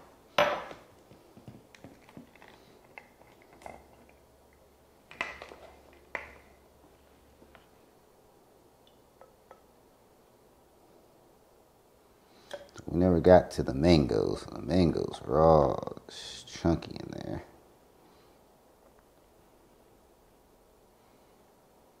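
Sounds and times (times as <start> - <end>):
glass set down on stone: 0.4 - 0.8.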